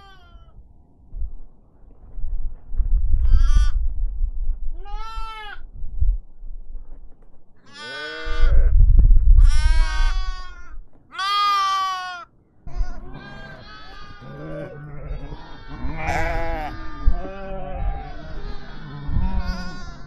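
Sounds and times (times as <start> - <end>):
sheep or goats bleating: 0.0 - 0.5, 4.8 - 5.6, 7.7 - 8.8, 9.4 - 20.0
low rumble: 0.6 - 4.8.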